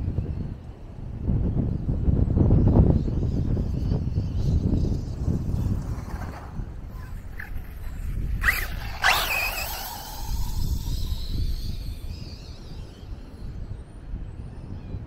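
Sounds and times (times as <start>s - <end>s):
wind rumbling on microphone: 0.0s - 15.0s
electric motor whining: 6.7s - 13.9s.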